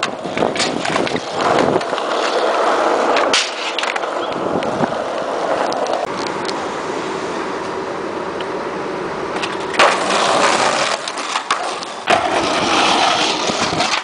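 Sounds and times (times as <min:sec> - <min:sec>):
skateboard clacking on ground: 0:00.0 - 0:06.5, 0:09.3 - 0:14.0
skateboard wheels rolling on pavement: 0:00.0 - 0:14.0.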